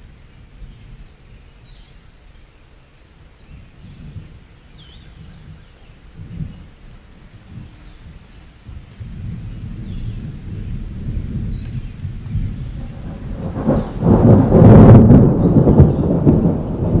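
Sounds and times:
thunder rumbling: 0:05.1 - 0:17.0.

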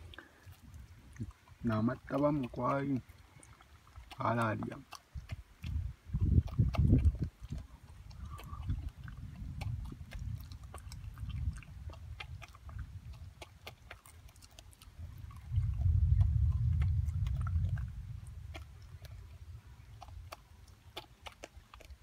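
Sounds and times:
dog crunching kernels: 0:00.0 - 0:22.0
low rumble: 0:15.0 - 0:20.4.

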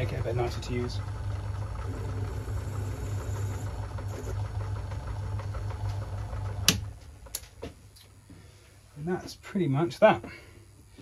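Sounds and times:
lathe humming: 0:00.0 - 0:07.3.

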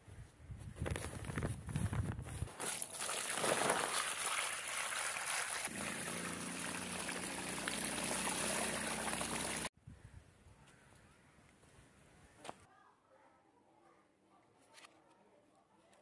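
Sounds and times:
water splashing through colander: 0:02.6 - 0:09.7.

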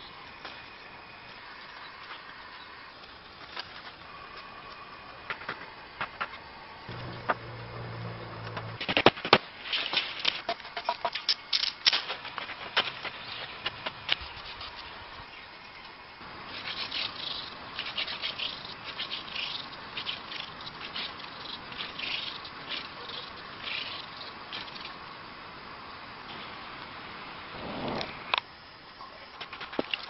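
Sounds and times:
dry twigs snapping and rustling: 0:08.5 - 0:14.9.

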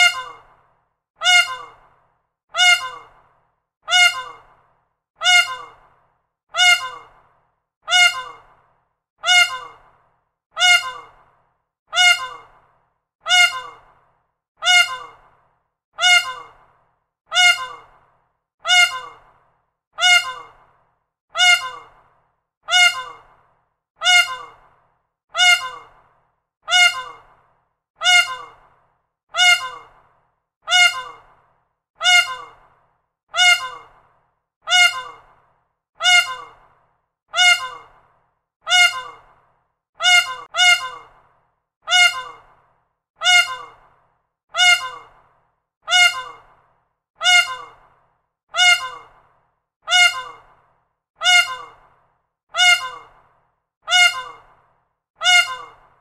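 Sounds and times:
peacock calling: 0:00.0 - 0:00.5, 0:01.2 - 0:01.8, 0:02.6 - 0:03.2, 0:03.9 - 0:04.5, 0:05.2 - 0:05.8, 0:06.6 - 0:07.2, 0:07.9 - 0:08.5, 0:09.2 - 0:09.8, 0:10.6 - 0:11.2, 0:12.0 - 0:12.5, 0:13.3 - 0:13.9, 0:14.6 - 0:15.2, 0:16.0 - 0:16.6, 0:17.3 - 0:17.9, 0:18.7 - 0:19.3, 0:20.0 - 0:20.6, 0:21.4 - 0:22.0, 0:22.7 - 0:23.3, 0:24.0 - 0:24.6, 0:25.4 - 0:26.0, 0:26.7 - 0:27.3, 0:28.0 - 0:28.6, 0:29.4 - 0:30.0, 0:30.7 - 0:31.3, 0:32.0 - 0:32.6, 0:33.4 - 0:33.9, 0:34.7 - 0:35.3, 0:36.0 - 0:36.6, 0:37.4 - 0:38.0, 0:38.7 - 0:39.3, 0:40.0 - 0:41.2, 0:41.9 - 0:42.5, 0:43.2 - 0:43.8, 0:44.6 - 0:45.2, 0:45.9 - 0:46.5, 0:47.2 - 0:47.8, 0:48.6 - 0:49.2, 0:49.9 - 0:50.5, 0:51.2 - 0:51.8, 0:52.6 - 0:53.2, 0:53.9 - 0:54.5, 0:55.2 - 0:55.9.

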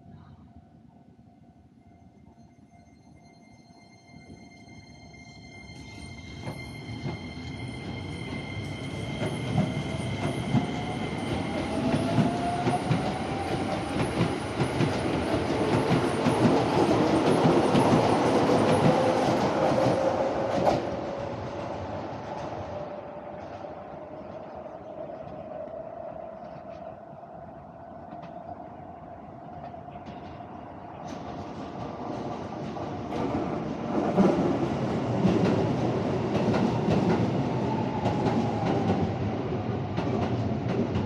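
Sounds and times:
train wheels clacking: 0:06.4 - 0:22.9.

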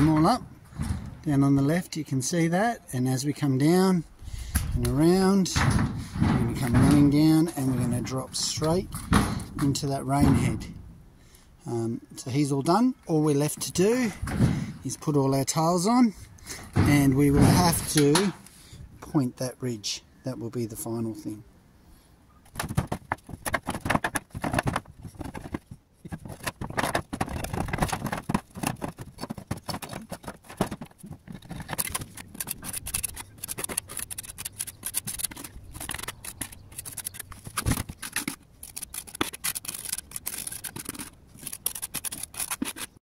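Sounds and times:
roof tiles clicking: 0:22.4 - 0:43.0
trowel scraping: 0:23.3 - 0:43.0.

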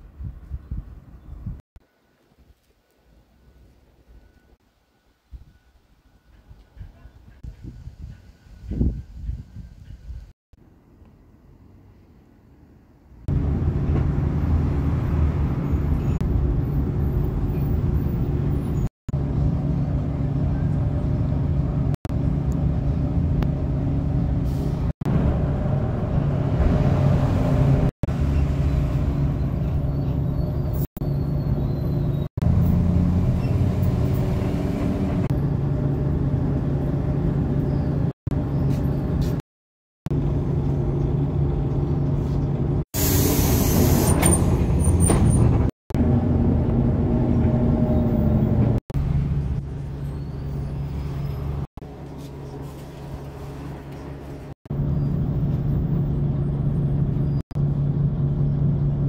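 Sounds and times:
vehicle hum and rumble from inside: 0:40.1 - 0:59.0.

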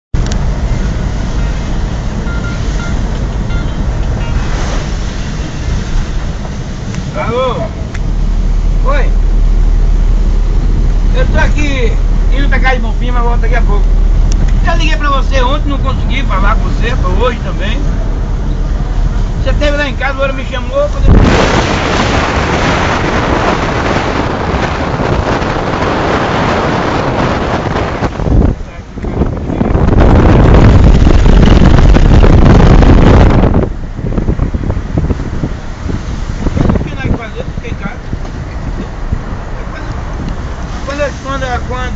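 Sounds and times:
van engine and road noise: 0:00.0 - 0:41.9
tyres hissing on wet road: 0:00.7 - 0:14.0, 0:35.0 - 0:41.9
wind rumble on microphone: 0:07.8 - 0:41.9.

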